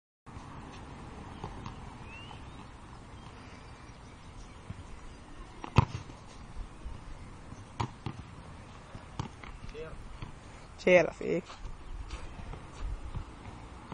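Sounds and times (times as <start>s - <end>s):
basketball bouncing on hard court: 5.6s - 6.2s, 7.5s - 8.3s.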